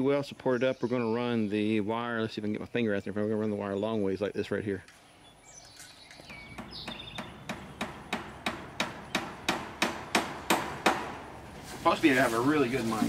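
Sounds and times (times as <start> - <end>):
hammer striking: 6.3 - 11.4.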